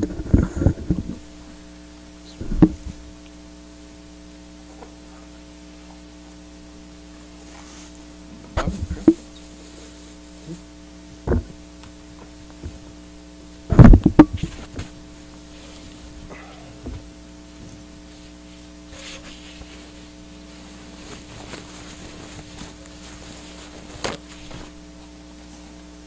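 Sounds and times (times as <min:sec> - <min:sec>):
electrical mains hum: 0:00.0 - 0:26.0.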